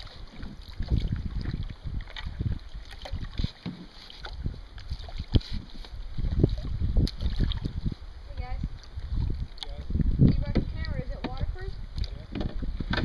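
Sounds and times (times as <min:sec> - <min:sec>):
wind buffeting microphone: 0:00.0 - 0:03.5, 0:04.2 - 0:13.0
light water sounds: 0:00.0 - 0:13.0
sharp knocks: 0:12.3 - 0:13.0.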